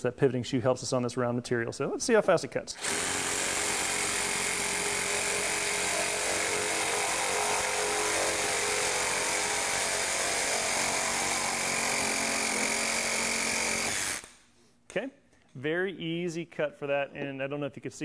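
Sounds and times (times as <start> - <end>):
reciprocating saw cutting pipe: 2.8 - 14.4.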